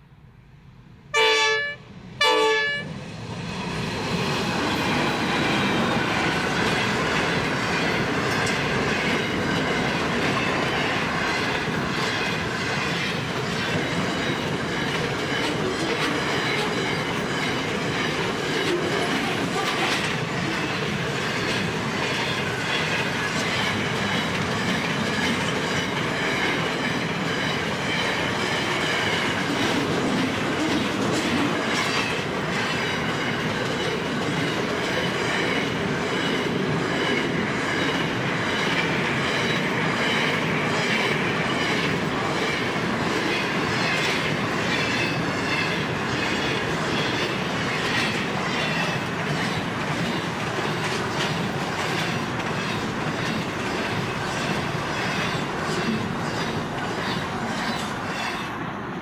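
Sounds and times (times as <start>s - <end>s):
freight train wheels on rail: 0.0s - 59.0s
clatter over rail joints: 43.0s - 58.4s.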